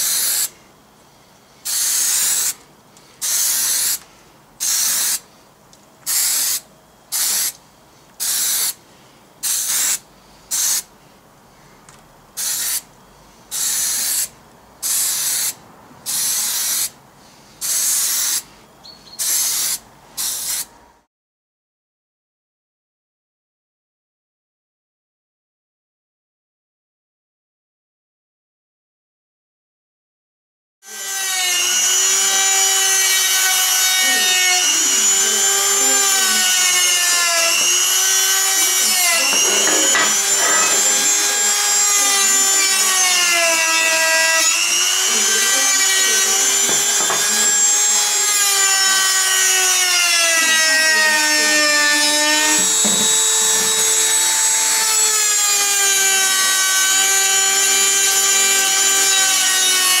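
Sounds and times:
rotary tool whining: 30.9 - 60.0
disc scraping metal: 38.4 - 41.4, 45.0 - 47.7.

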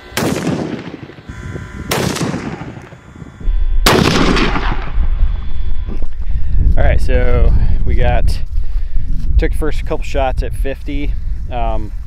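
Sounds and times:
rifle shots with echo: 0.2 - 1.1, 1.9 - 2.8, 3.8 - 5.1
low rumble: 1.3 - 9.5.

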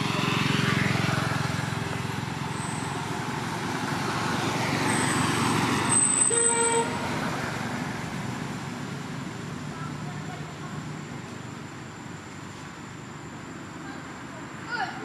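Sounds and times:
vehicle engine passing: 0.0 - 10.7.

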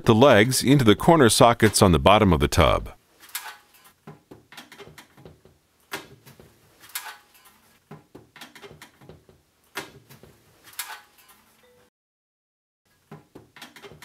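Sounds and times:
plastic legs knocking and clicking: 4.0 - 6.5, 7.9 - 10.3, 13.1 - 14.0.

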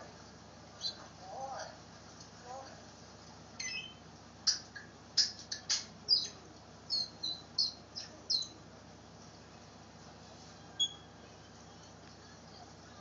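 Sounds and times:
parrot chirping and whistling: 3.6 - 4.6, 5.2 - 8.5, 10.8 - 11.1.

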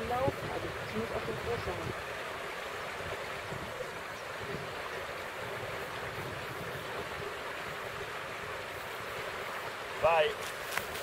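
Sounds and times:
wind buffeting microphone: 0.0 - 10.0
river rushing: 0.0 - 11.0.

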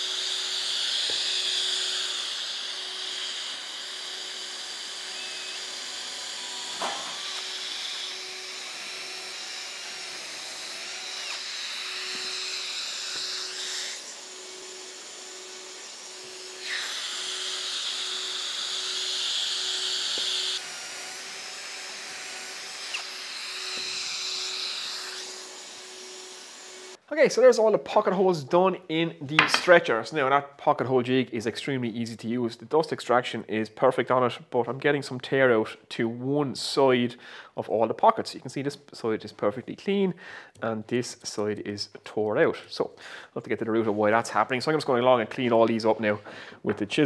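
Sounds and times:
cordless drill boring wood: 0.0 - 27.0
sharp knocks of board: 6.8 - 7.1, 29.4 - 29.7.

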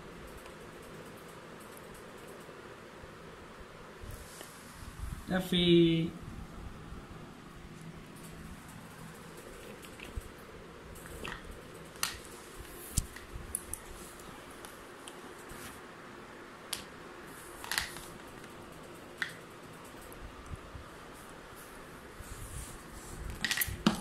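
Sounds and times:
faint steady hum: 0.0 - 24.0
puppy chewing rubber tubes: 8.7 - 10.4.

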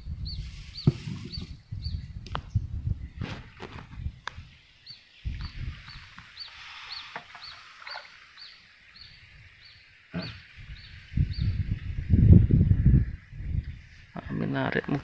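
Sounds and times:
low rumble on microphone: 0.0 - 4.5, 10.2 - 15.0.

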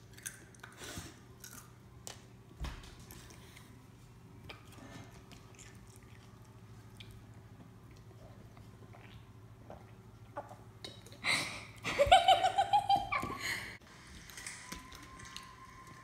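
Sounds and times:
girl laughing high-pitched: 11.9 - 13.8.

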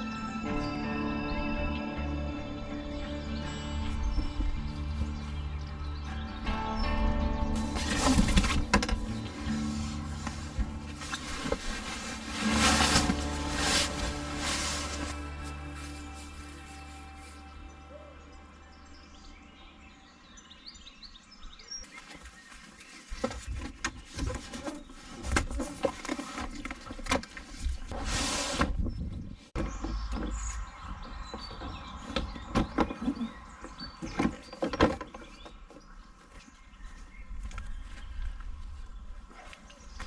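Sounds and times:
birds chirping: 0.0 - 40.0
camping gear knocking and clattering: 7.4 - 15.9, 21.9 - 28.0, 29.6 - 36.5.

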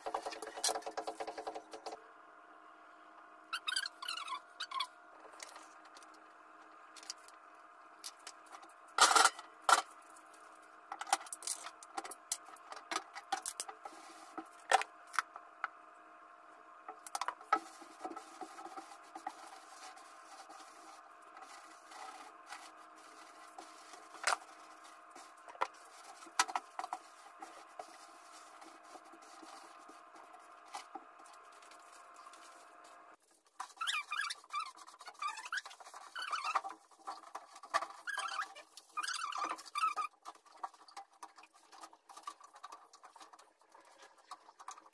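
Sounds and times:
faint steady hum: 0.0 - 44.9
sponge scrubbing stovetop: 13.7 - 14.7, 17.0 - 44.9.

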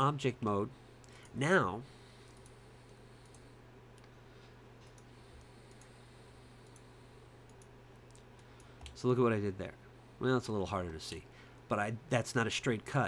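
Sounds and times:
low electrical hum: 0.0 - 13.0
computer mouse clicks: 2.2 - 2.6, 3.2 - 4.2, 4.8 - 6.0, 6.6 - 9.0.

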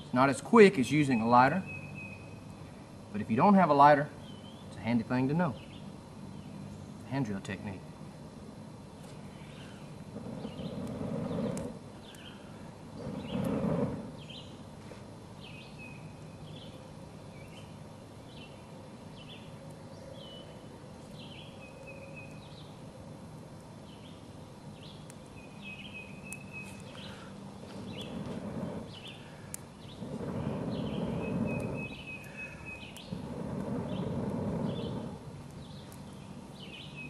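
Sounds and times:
small birds chirping: 0.8 - 7.7, 9.0 - 14.7, 15.4 - 22.8, 23.7 - 37.0
kindling fire clicks: 9.0 - 37.0
rushes of air: 9.2 - 14.4, 26.8 - 35.5.

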